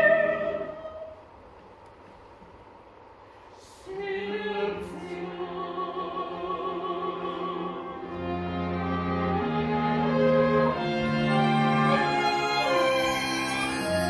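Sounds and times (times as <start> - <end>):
classical orchestral music: 7.4 - 14.0.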